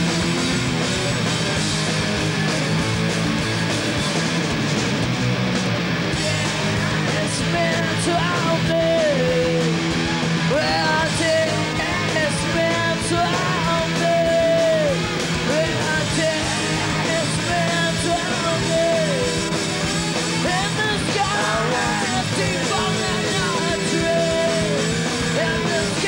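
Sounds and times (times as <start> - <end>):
punk rock band playing: 0.0 - 26.0
woman singing: 6.2 - 9.6, 10.5 - 19.4, 20.3 - 26.0.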